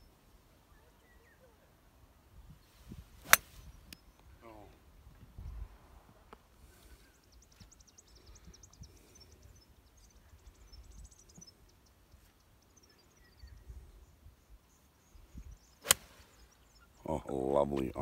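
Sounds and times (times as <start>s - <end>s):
faint bird chirps: 0.0s - 4.7s, 6.7s - 17.4s
low wind rumble: 2.2s - 6.3s
golf club striking ball: 3.2s - 3.6s, 15.8s - 16.1s.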